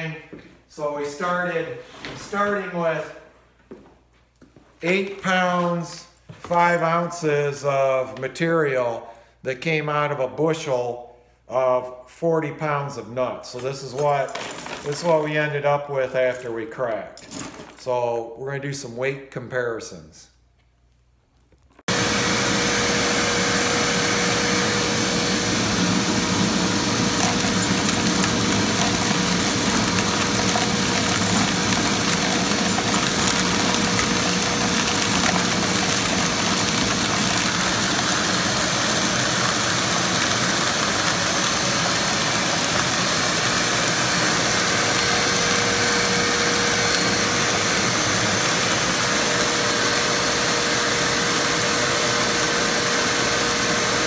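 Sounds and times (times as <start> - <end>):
shop vac running: 13.4 - 15.8, 21.9 - 54.0
nut pieces ticking inside column: 27.2 - 39.4.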